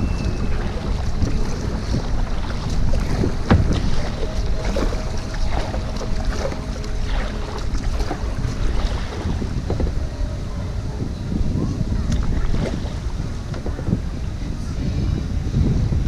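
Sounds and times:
paddle splashing in water: 0:00.0 - 0:10.2, 0:11.8 - 0:14.2
wind rumbling on microphone: 0:00.0 - 0:16.0.

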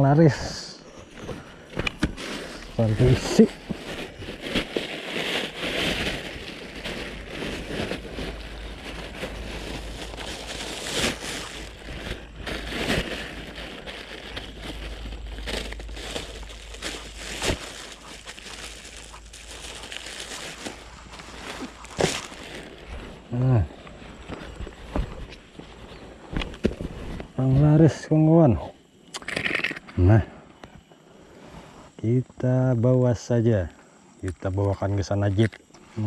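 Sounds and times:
plastic bags crinkling: 0:01.9 - 0:24.8.

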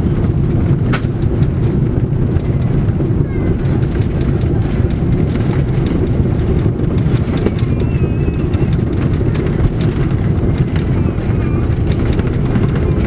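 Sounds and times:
deep rumble of aircraft wheels: 0:00.0 - 0:13.0
small rattles and knocks: 0:00.0 - 0:13.0.

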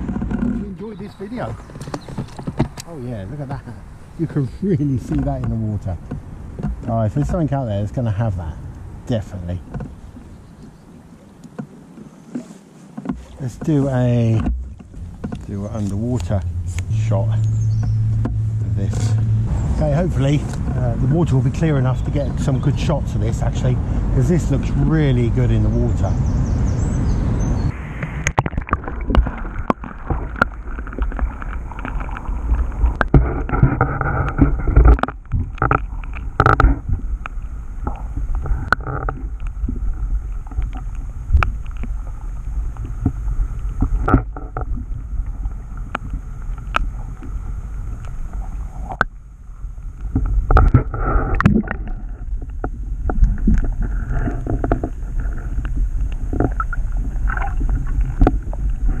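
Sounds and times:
underwater river rumbling and gurgling: 0:00.0 - 0:59.0
small clicks and knocks: 0:12.3 - 0:18.4, 0:32.9 - 0:36.9.

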